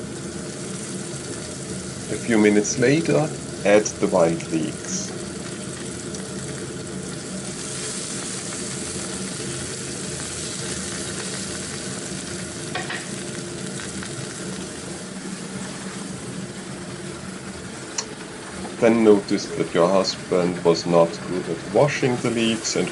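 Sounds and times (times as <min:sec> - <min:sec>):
food sizzling in frying pan: 0:00.0 - 0:22.9.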